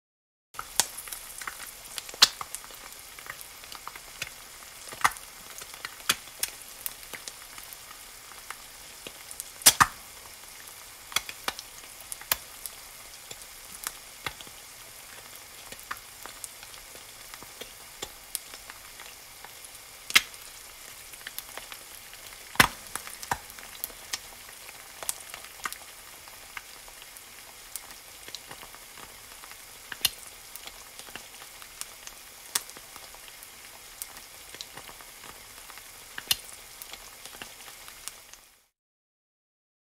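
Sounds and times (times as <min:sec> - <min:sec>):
fat popping and crackling: 0:00.6 - 0:02.6, 0:04.2 - 0:07.3, 0:09.0 - 0:10.0, 0:20.1 - 0:20.4, 0:22.4 - 0:24.2
egg sizzling in a pan: 0:00.6 - 0:38.7.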